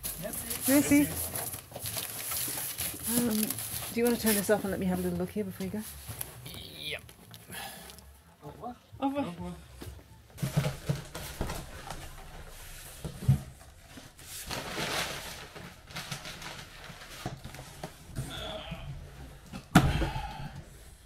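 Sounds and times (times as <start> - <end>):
rustling: 0.0 - 8.0, 10.4 - 18.1.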